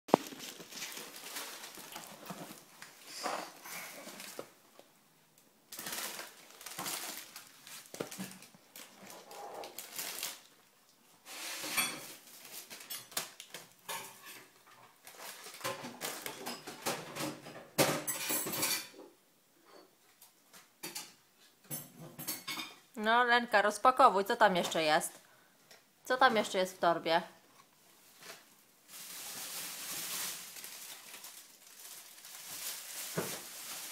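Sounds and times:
paper bag and groceries rustling: 0.1 - 4.8, 5.7 - 13.8, 14.9 - 16.6, 28.0 - 33.9.

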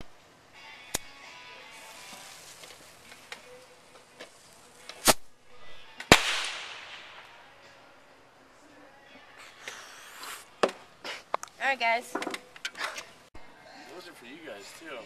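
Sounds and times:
firework hissing: 1.7 - 3.2, 4.2 - 5.4
firework bangs: 6.1 - 7.6.

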